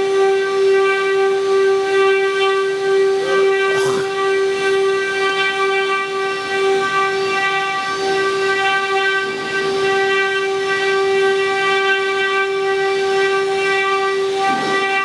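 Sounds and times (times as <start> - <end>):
router spindles whining: 0.0 - 15.0.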